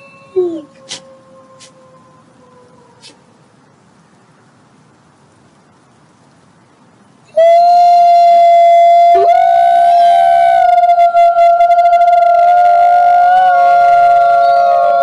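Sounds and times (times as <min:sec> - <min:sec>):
wolf howling: 0:00.4 - 0:03.3, 0:07.4 - 0:15.0
second wolf howl gliding up: 0:07.4 - 0:15.0.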